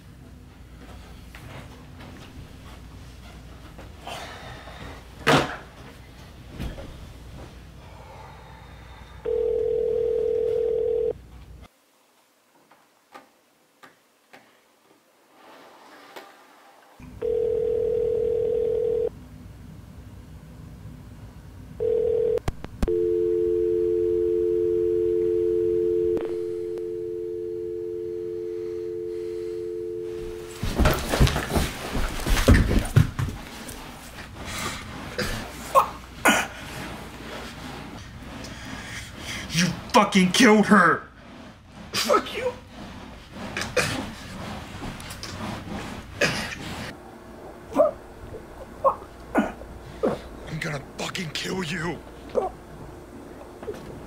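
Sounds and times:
telephone ringing tones: 0:09.2 - 0:11.2, 0:17.0 - 0:19.1, 0:21.8 - 0:30.6
two-note dial tone: 0:09.3 - 0:11.1, 0:17.2 - 0:19.1, 0:21.8 - 0:30.6.

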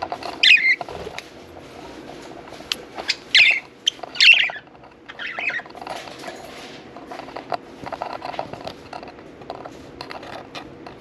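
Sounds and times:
budgerigar calls: 0:03.1 - 0:05.6.

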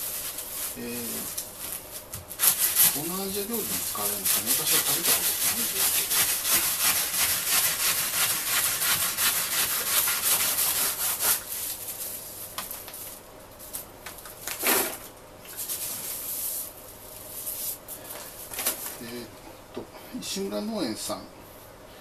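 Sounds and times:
rustles and scrapes of handling: 0:00.0 - 0:06.6, 0:09.3 - 0:19.3
knife sawing through lemongrass: 0:02.3 - 0:11.7.

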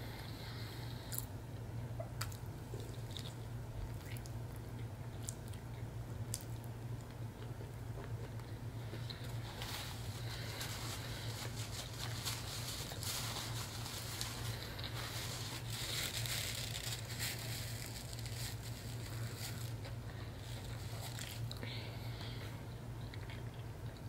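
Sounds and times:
steady low hum: 0:00.0 - 0:24.0
chewing: 0:02.2 - 0:09.7, 0:23.0 - 0:24.0
paper napkin rustling: 0:09.2 - 0:21.5.

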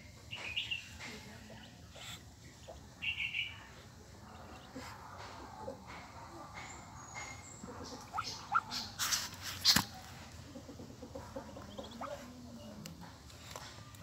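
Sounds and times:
ducklings peeping: 0:00.3 - 0:13.0
loud rustling and scraping: 0:08.7 - 0:10.2.

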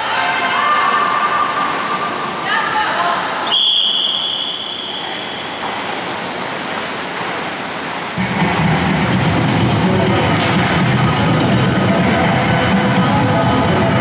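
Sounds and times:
indoor pool hall hiss: 0:00.0 - 0:14.0
long high whistle blast: 0:03.4 - 0:05.6
music with strong low beat: 0:08.2 - 0:14.0.

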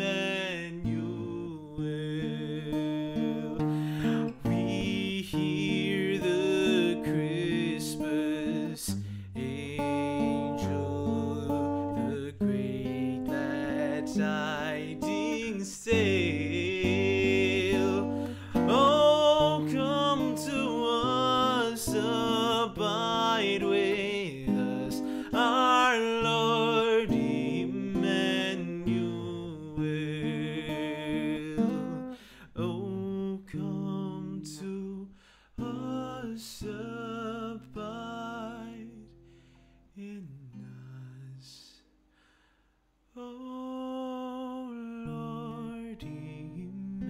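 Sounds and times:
strummed acoustic guitar: 0:00.0 - 0:34.9, 0:35.6 - 0:41.0, 0:45.0 - 0:47.0
man singing: 0:00.0 - 0:39.1, 0:39.9 - 0:41.9, 0:43.1 - 0:47.0.

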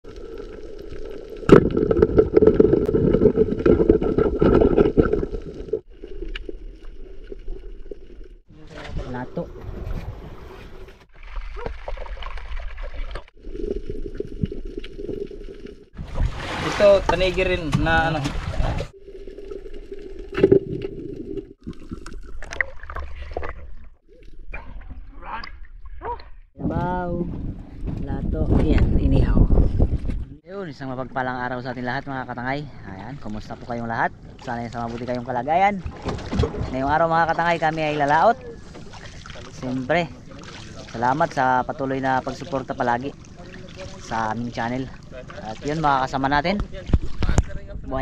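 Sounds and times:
dense crackling and thumping: 0:35.9 - 0:38.0.

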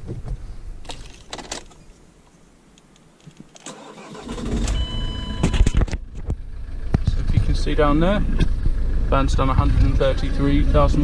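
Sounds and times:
diesel engine cranking and idling: 0:03.6 - 0:11.0
short high beep: 0:04.6 - 0:05.9.

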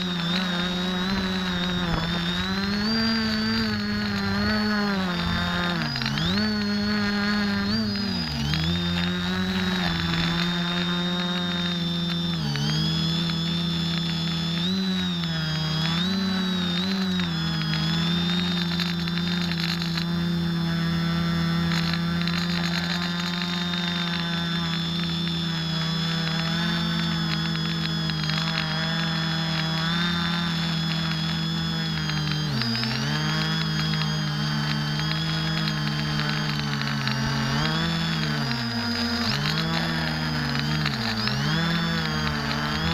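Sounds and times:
drone motors and propellers whining: 0:00.0 - 0:42.9.

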